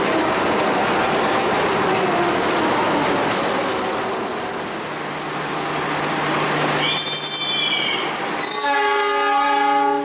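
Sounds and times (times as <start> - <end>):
high squeal: 6.8 - 8.8
train horn: 6.8 - 10.0.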